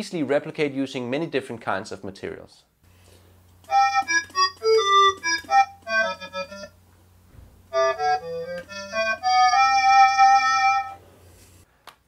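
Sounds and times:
synthesized ocarina melody: 7.8 - 11.0.

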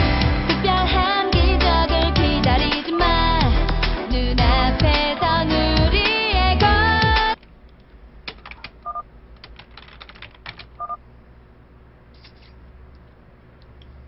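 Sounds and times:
keyboard typing: 8.3 - 11.0.

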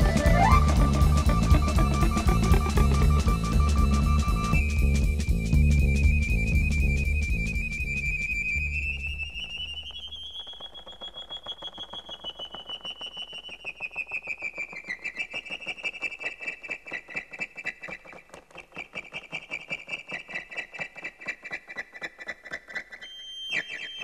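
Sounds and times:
high synthesized tone pulsing: 0.0 - 10.0.

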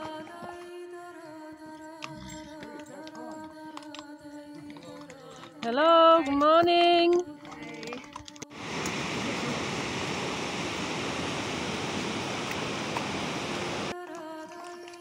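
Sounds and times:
rushing river water: 8.5 - 13.9.

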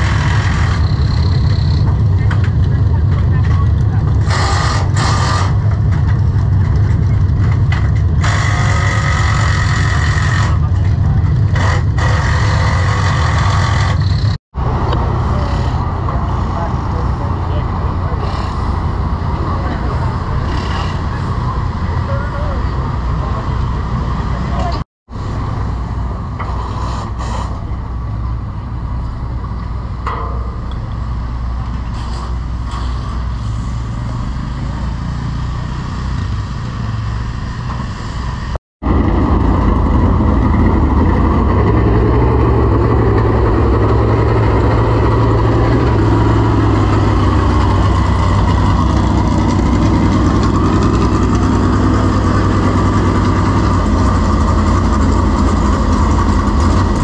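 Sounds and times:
race car engines idling: 0.0 - 24.8, 38.9 - 57.0.

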